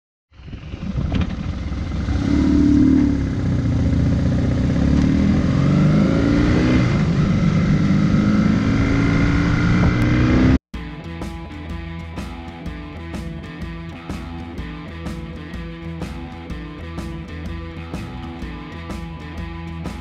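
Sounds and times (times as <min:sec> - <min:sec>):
motorcycle engine accelerating: 0:00.3 - 0:10.6.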